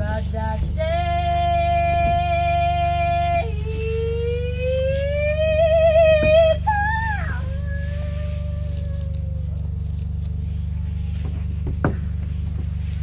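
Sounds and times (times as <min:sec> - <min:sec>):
woman singing with vibrato: 0:00.0 - 0:09.5
steady low hum: 0:00.0 - 0:13.0.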